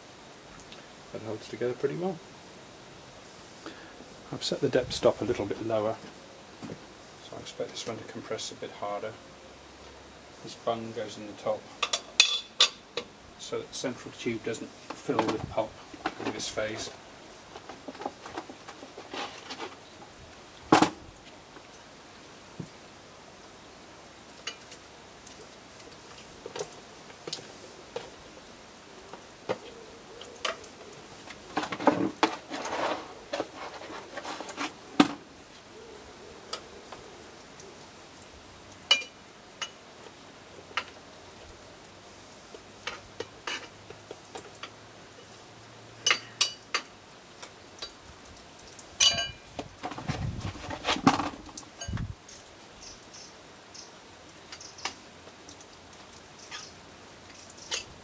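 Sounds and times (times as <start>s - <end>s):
knocks of tub and tool: 20.7s - 21.0s.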